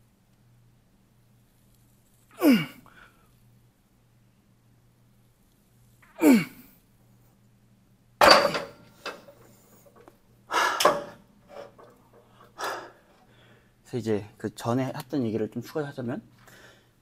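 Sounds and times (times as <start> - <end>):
man grunting: 2.4 - 2.8, 6.2 - 6.6
barbell thunk: 8.2 - 9.3, 10.8 - 11.2
heavy exhales and gasps: 10.5 - 11.7, 12.4 - 13.6.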